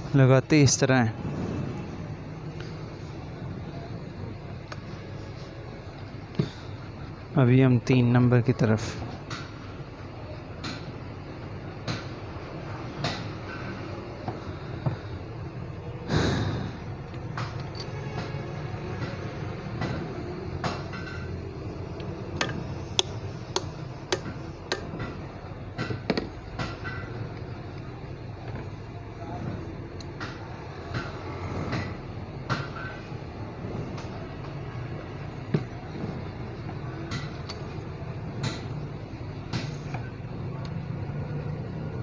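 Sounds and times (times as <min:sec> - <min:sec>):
low background rumble: 0:08.8 - 0:42.0
hammer tapping on metal: 0:22.4 - 0:27.3, 0:38.4 - 0:38.8.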